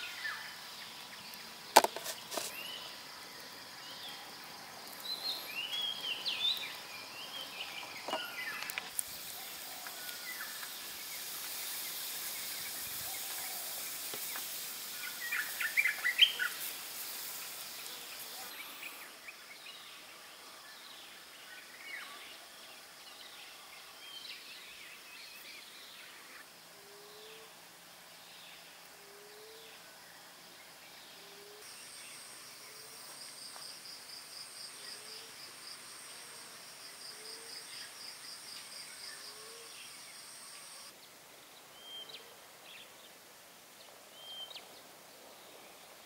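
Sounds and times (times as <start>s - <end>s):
high even hiss: 0.0s - 19.6s, 31.6s - 40.9s
outdoor background noise: 0.0s - 46.0s
birds chirping: 4.9s - 19.2s.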